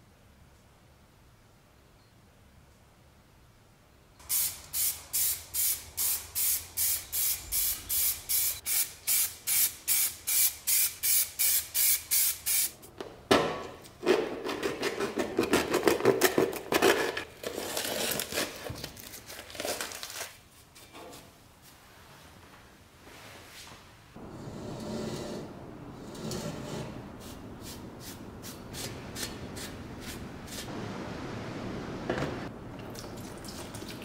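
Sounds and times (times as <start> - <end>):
spray paint can hissing: 4.2 - 12.8
rough rustling noise: 18.3 - 24.2.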